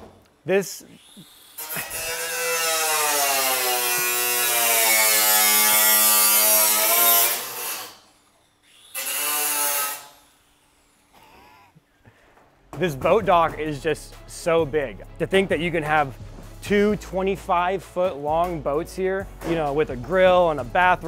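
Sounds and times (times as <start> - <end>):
power tool whine: 0.8 - 11.1.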